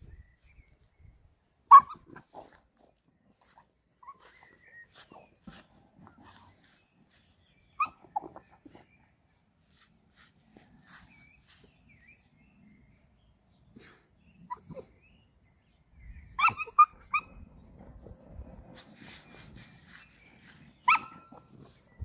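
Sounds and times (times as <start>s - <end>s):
puppy barking: 1.7s - 2.2s, 20.8s - 21.4s.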